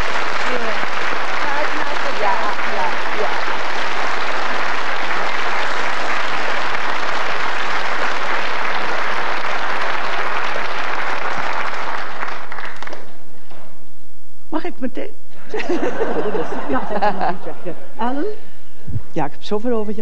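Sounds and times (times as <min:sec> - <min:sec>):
audience applauding: 0:00.0 - 0:13.2, 0:15.5 - 0:18.0.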